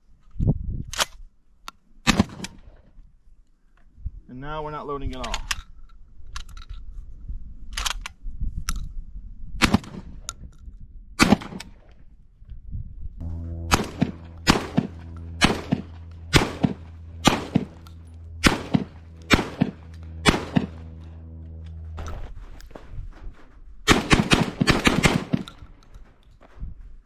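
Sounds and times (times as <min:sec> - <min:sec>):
shotgun shells loading clicks: 0:05.2 - 0:06.9, 0:07.7 - 0:08.9
shotgun shots: 0:09.6 - 0:10.2, 0:11.2 - 0:11.8, 0:13.6 - 0:17.8, 0:18.4 - 0:21.2, 0:23.9 - 0:25.7.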